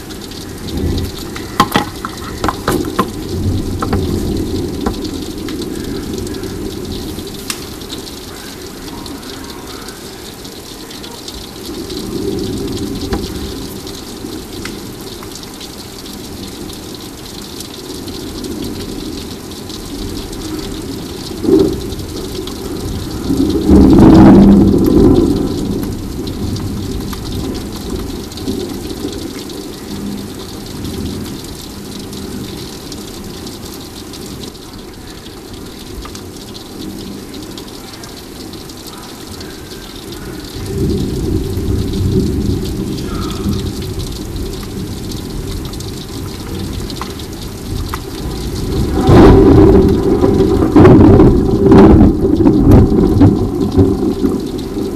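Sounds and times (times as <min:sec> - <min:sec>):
rolling thunder: 0:00.0 - 0:10.0, 0:11.2 - 0:15.2, 0:17.8 - 0:39.4, 0:40.0 - 0:54.9
steady rain: 0:00.0 - 0:54.9
sharp thunder crack: 0:48.4 - 0:54.8.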